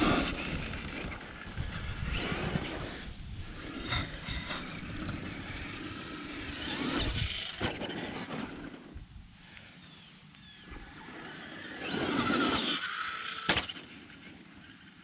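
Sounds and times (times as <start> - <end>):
rc truck motor whine: 0.0 - 15.0
tires on gravel: 0.0 - 15.0
rc truck landing thump: 13.4 - 13.8.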